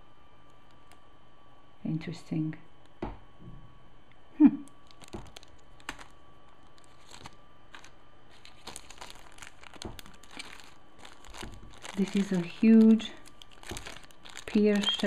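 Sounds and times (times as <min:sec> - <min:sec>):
plastic bags crinkling: 0:04.7 - 0:15.0.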